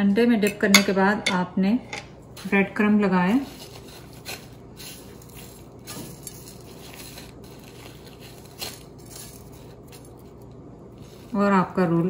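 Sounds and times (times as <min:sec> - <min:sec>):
breadcrumbs rustling and crunching: 0:03.2 - 0:12.0.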